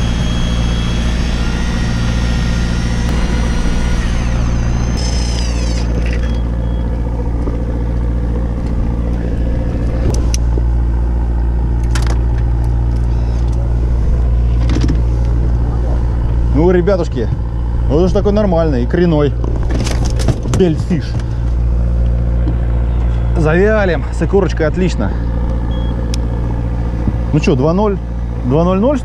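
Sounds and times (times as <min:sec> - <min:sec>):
fishing reel whine: 0:00.0 - 0:07.6, 0:12.8 - 0:13.8
boat engine drone: 0:00.0 - 0:29.0.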